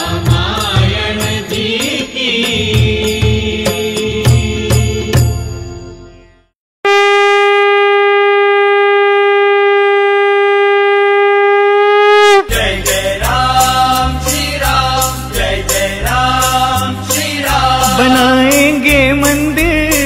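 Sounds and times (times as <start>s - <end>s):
devotional song with drum rhythm: 0.0s - 5.8s, 12.5s - 20.0s
devotional music: 0.0s - 6.6s, 12.4s - 20.0s
conch shell blown: 6.8s - 12.6s.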